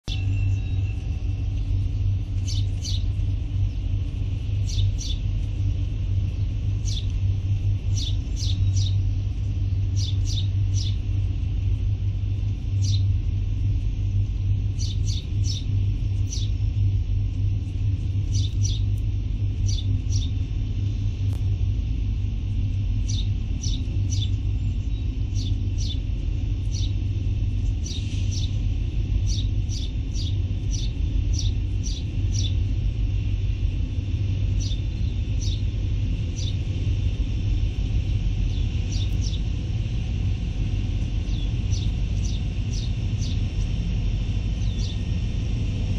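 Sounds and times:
steady low rumble: 0.0 - 45.9
birds chirping: 0.1 - 11.4, 12.7 - 13.7, 14.3 - 16.9, 17.8 - 20.4, 23.0 - 33.3, 34.4 - 36.9, 38.0 - 39.6, 41.1 - 43.7, 44.5 - 45.1.

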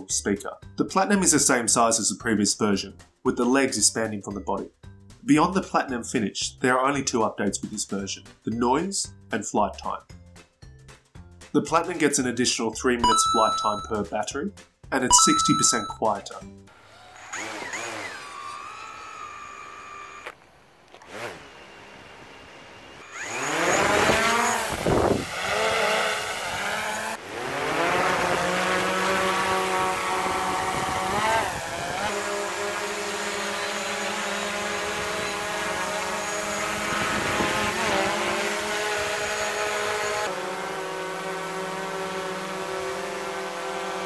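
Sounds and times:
drone propellers whining: 16.9 - 20.4, 21.4 - 44.0.

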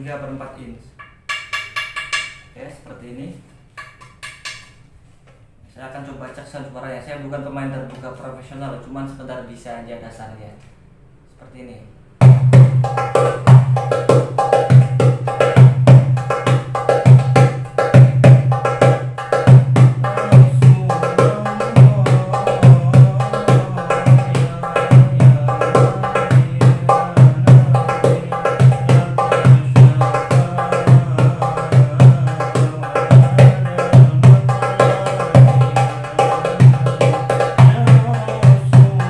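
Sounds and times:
hand drum rhythm: 1.0 - 2.5, 12.2 - 39.0.

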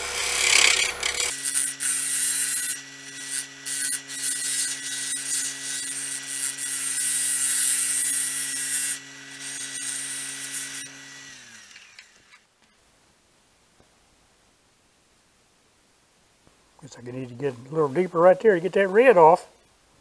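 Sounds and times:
lathe cutting wood hiss: 0.0 - 1.3
lathe motor humming: 0.0 - 1.3.

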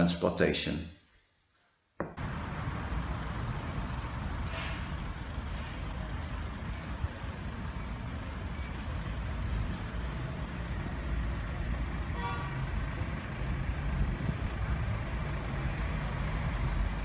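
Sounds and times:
traffic rumble: 2.0 - 17.0.

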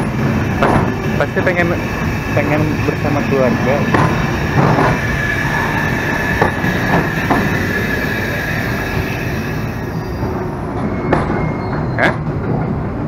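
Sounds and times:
train wheels rumbling on track: 0.0 - 13.0
knocks at rail joints: 3.9 - 5.0
thin wheel squeal: 4.9 - 12.2.

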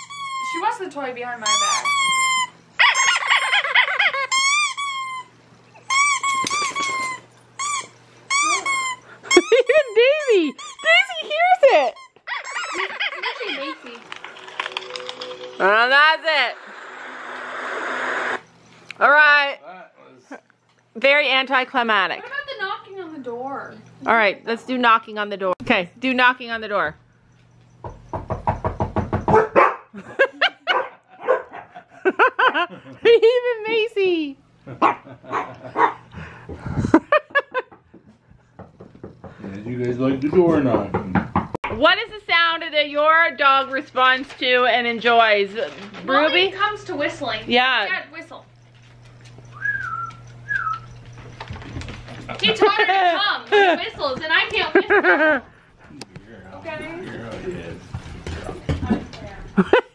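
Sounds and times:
squeaky dog toy squeaking: 0.0 - 0.8, 1.4 - 13.8
dogs barking: 2.8 - 4.3, 29.1 - 31.9, 34.7 - 36.2
rapid knocking on a door: 27.8 - 29.6, 36.4 - 39.5, 40.3 - 41.8.

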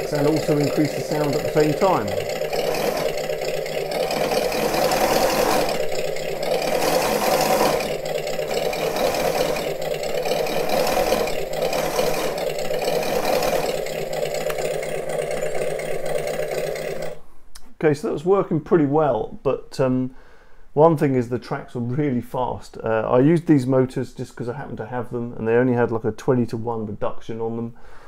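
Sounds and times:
electric gear motors running: 0.0 - 17.2
simulated engine sound through speakers: 0.0 - 17.2.

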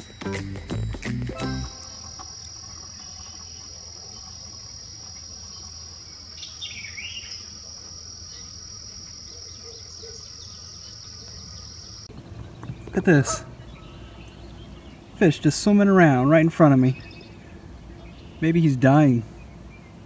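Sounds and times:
insects trilling: 0.0 - 20.0
short dipping insect call: 0.7 - 13.1.

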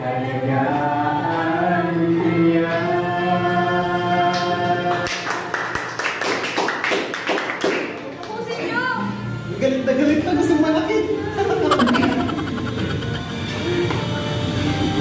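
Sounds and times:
woman and man singing: 0.0 - 5.1
people clapping: 4.3 - 8.6.

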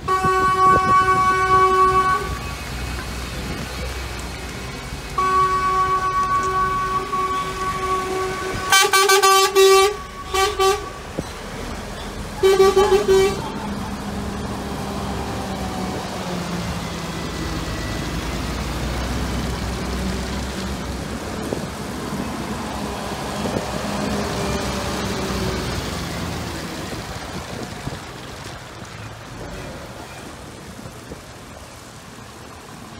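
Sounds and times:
truck horns honking: 0.0 - 3.6, 5.1 - 16.0
heavy trucks driving on wet road: 0.0 - 32.9.

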